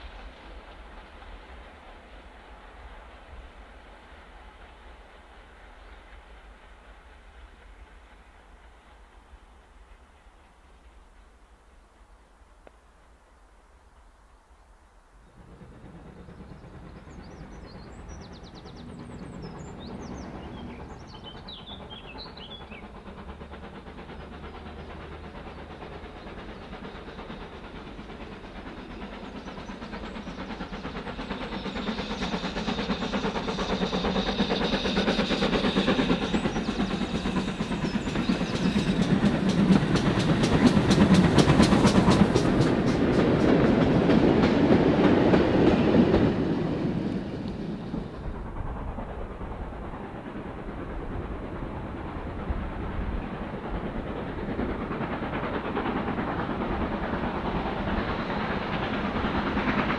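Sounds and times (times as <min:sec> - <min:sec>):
train approaching: 0:00.0 - 0:59.9
birds chirping: 0:15.9 - 0:23.0, 0:28.9 - 0:40.1.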